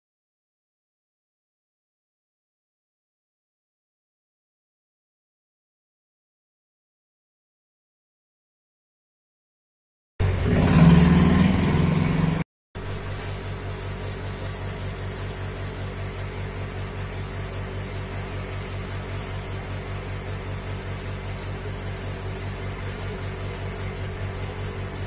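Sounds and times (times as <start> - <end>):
low mechanical hum with throb: 10.2 - 25.0.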